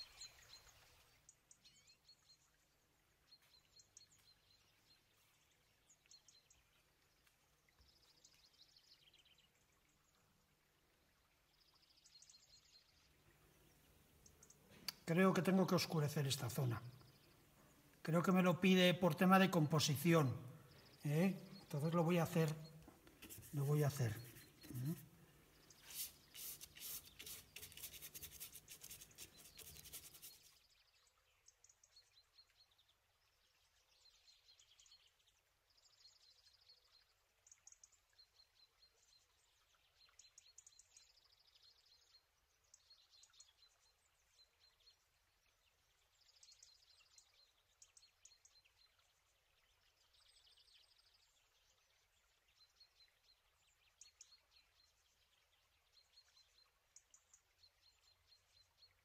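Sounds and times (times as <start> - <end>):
faint bird chirps: 0.0 - 59.0
paintbrush scrubbing on card: 23.2 - 25.0, 25.7 - 30.5.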